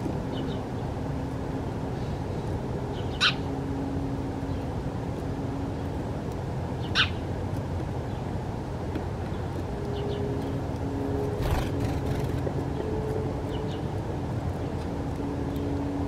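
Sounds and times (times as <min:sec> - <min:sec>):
sparrow chirps: 0:02.9 - 0:03.5, 0:06.8 - 0:07.2.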